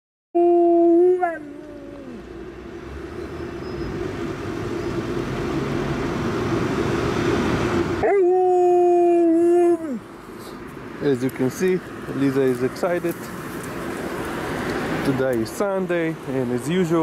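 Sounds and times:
dog howling: 0.4s - 2.2s, 8.0s - 10.0s
rushing noise: 1.7s - 16.7s.

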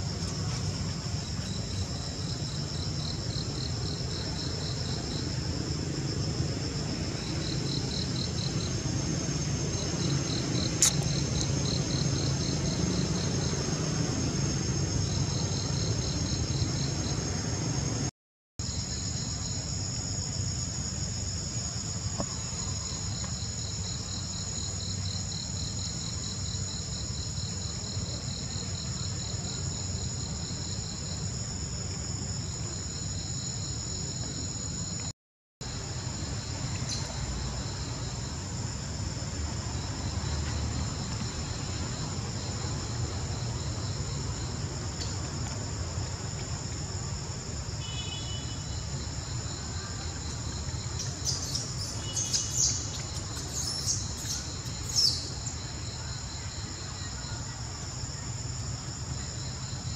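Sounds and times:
shrill insect chorus: 0.0s - 59.9s
fast-pulsing insect trill: 51.0s - 55.6s.

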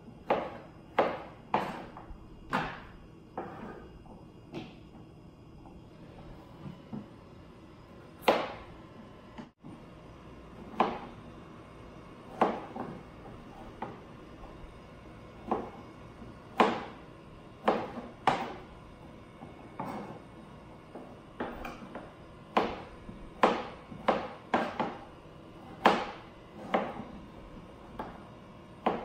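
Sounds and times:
knife chopping on cutting board: 0.2s - 3.8s, 8.2s - 8.7s, 10.6s - 11.1s, 12.3s - 14.0s, 15.4s - 17.0s, 17.6s - 18.7s, 19.4s - 20.2s, 20.9s - 29.0s.

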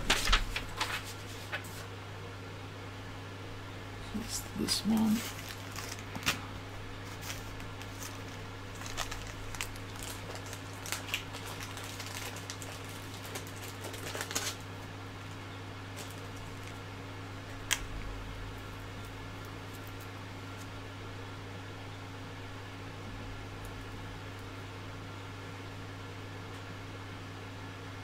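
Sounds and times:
low electrical hum: 0.0s - 28.0s
parts and plastic bag rustling: 4.4s - 14.8s, 15.9s - 16.8s.

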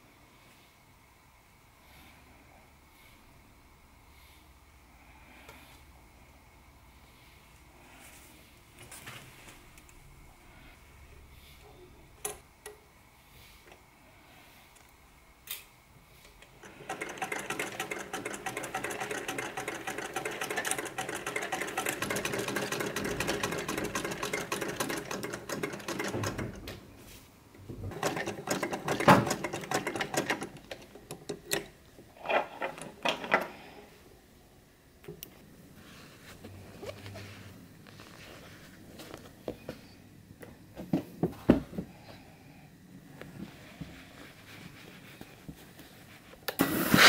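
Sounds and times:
sewing machine stitching: 16.4s - 26.8s, 27.9s - 32.9s.

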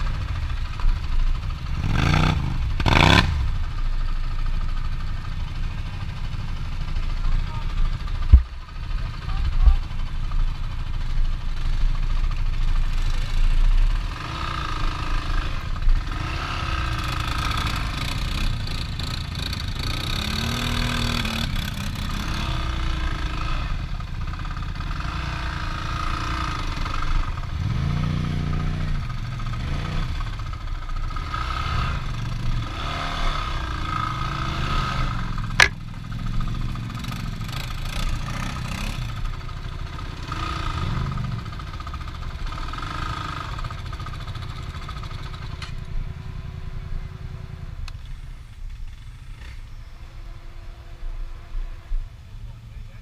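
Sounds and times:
vehicle engine revving: 1.6s - 3.7s, 12.9s - 45.8s
sharp knock: 35.6s - 35.8s.

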